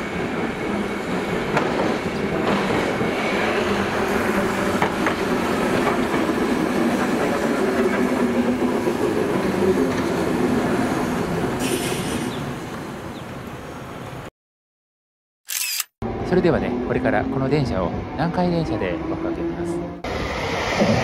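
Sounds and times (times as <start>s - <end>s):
tram wheels on rails: 0.0s - 13.8s.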